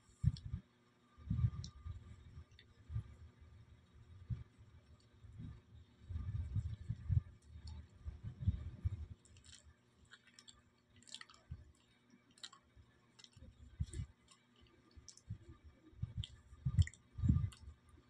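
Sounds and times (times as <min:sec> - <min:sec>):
dull low thumps: 0:04.1 - 0:09.2
person chewing banana: 0:08.9 - 0:17.8.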